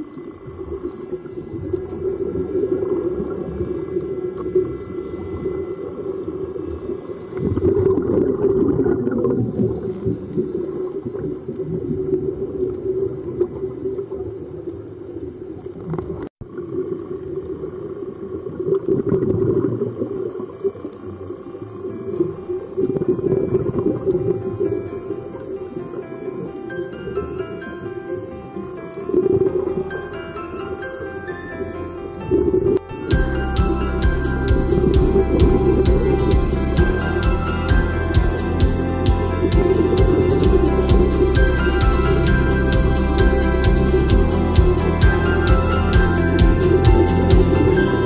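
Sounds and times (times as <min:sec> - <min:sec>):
steady low hum: 0:32.7 - 0:48.0.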